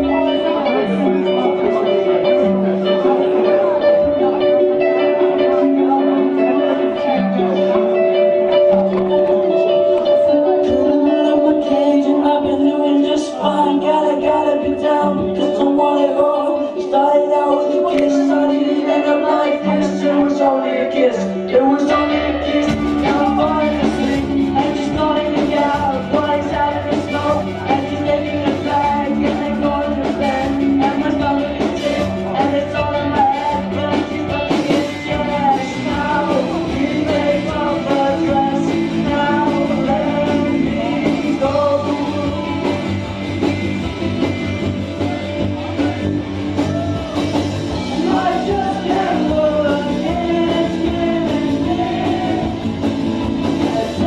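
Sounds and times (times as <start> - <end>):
man singing into microphone: 0.0 - 54.0
rock band playing: 0.0 - 54.0.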